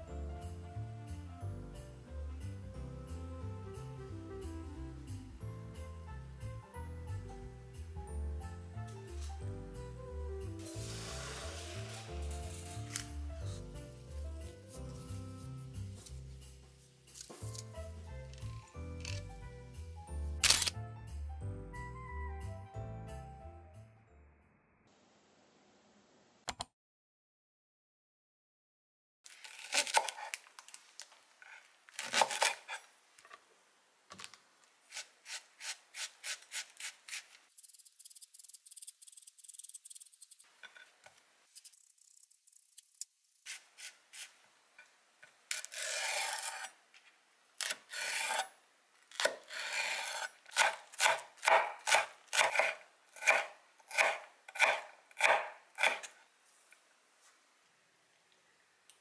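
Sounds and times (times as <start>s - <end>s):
knife chopping on cutting board: 49.1s - 56.1s.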